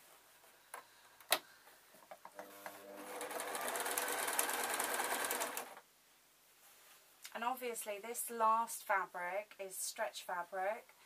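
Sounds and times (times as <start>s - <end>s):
sewing machine stitching: 2.3s - 5.8s.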